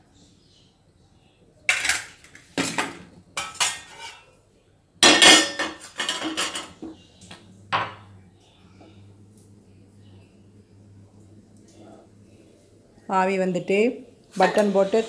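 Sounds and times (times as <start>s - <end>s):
metal cookware clanking and scraping: 1.7s - 4.3s, 5.0s - 6.9s.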